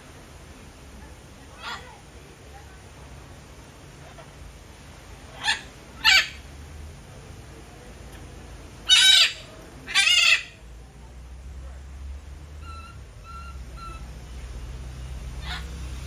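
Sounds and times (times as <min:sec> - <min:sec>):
macaw squawking: 0:05.4 - 0:06.4, 0:08.9 - 0:10.6, 0:12.6 - 0:14.1, 0:15.4 - 0:15.8.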